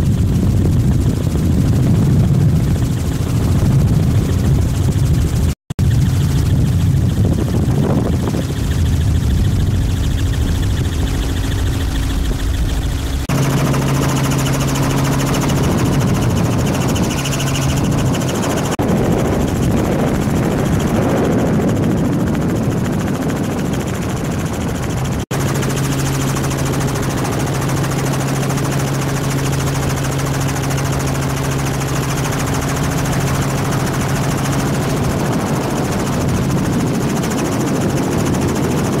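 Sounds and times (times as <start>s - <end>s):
helicopter rotor and engine drone: 0.0s - 39.0s.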